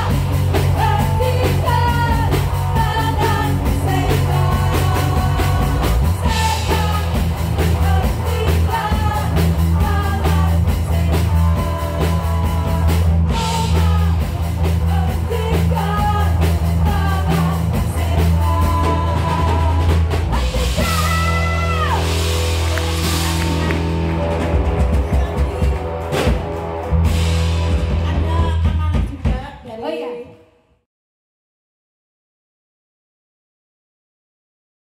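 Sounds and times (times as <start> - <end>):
person singing: 0.0 - 22.3
live rock band playing: 0.0 - 29.5.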